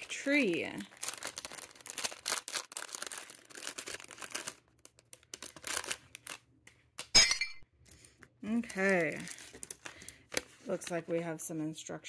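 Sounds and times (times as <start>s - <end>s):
plastic bag crinkling: 0.0s - 6.5s, 8.5s - 10.9s.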